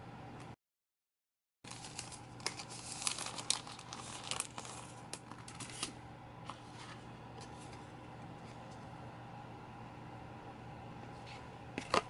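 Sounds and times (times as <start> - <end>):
plastic packaging crinkling: 1.7 - 6.0.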